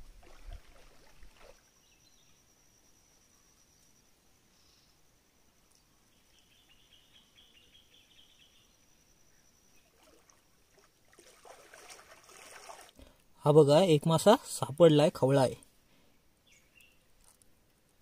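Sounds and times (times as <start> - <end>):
thin high whine: 1.7 - 10.0.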